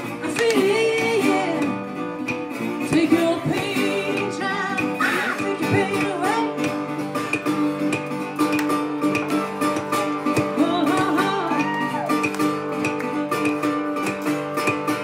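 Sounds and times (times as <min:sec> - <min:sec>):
woman singing: 0:00.0 - 0:01.9, 0:02.8 - 0:06.8, 0:10.3 - 0:12.3
resonator guitar fingerpicking: 0:00.0 - 0:15.0.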